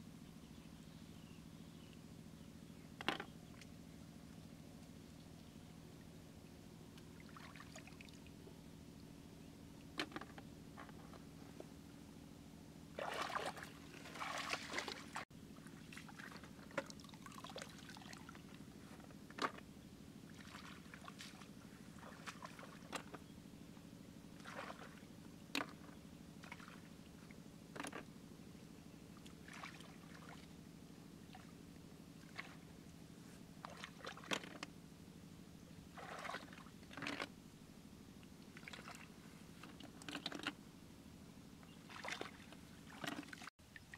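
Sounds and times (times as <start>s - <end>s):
steady low hum: 0.0s - 43.9s
hands splashing in muddy water: 13.0s - 15.2s, 20.3s - 23.1s, 35.9s - 37.0s, 41.9s - 43.5s.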